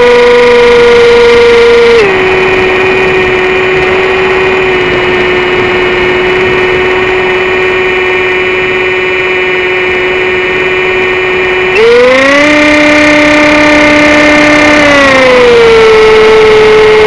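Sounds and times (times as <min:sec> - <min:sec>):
electric motor and propeller whine: 0:00.0 - 0:17.0
wind rushing: 0:02.0 - 0:08.8.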